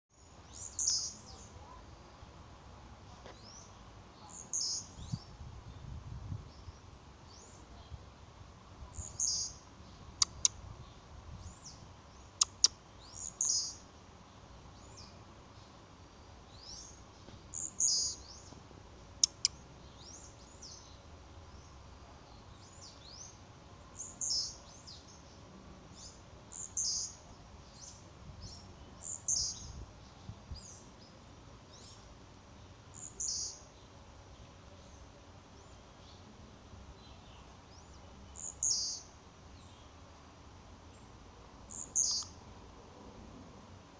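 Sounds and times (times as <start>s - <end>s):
faint bird chirps: 0.1s - 2.3s, 3.0s - 8.1s, 8.8s - 18.6s, 19.2s - 36.3s, 36.9s - 40.0s, 40.9s - 42.4s
sharp clicks: 10.2s - 10.6s, 19.2s - 19.6s.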